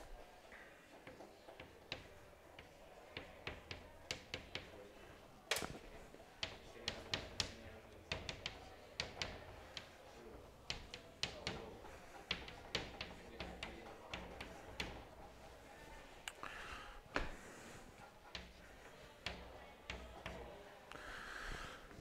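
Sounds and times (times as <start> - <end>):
chalk tapping on chalkboard: 1.0 - 5.0, 6.4 - 15.9, 17.9 - 20.6.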